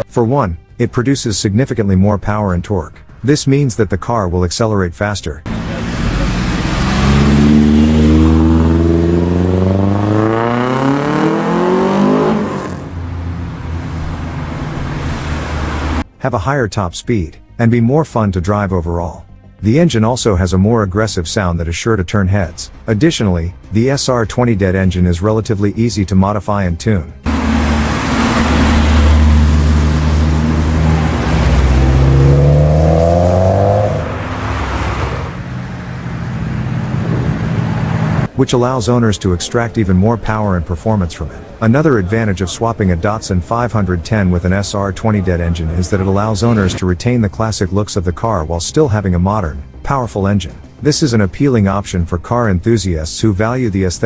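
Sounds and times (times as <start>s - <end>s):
car engine accelerating: 5.4s - 16.0s, 27.3s - 46.8s.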